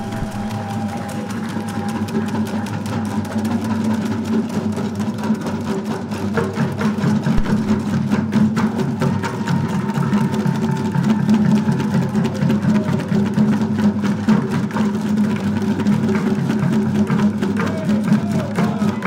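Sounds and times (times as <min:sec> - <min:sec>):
sustained tone: 0:00.0 - 0:01.1
drummers playing fast rhythm: 0:00.0 - 0:19.0.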